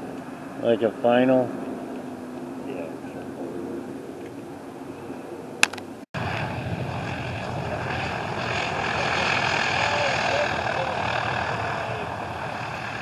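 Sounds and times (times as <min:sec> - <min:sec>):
propeller aircraft engines running: 0:00.0 - 0:13.0
wind: 0:00.0 - 0:13.0
sharp click: 0:05.6 - 0:05.9.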